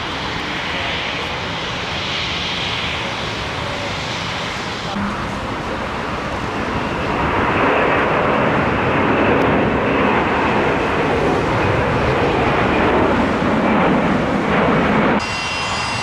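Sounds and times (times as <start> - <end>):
jet engines rushing noise: 0.0 - 16.0.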